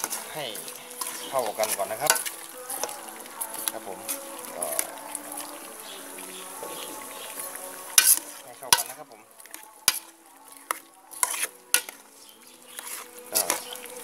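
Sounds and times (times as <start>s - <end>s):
metal spoon scraping pot: 0.0s - 4.2s, 7.3s - 13.9s.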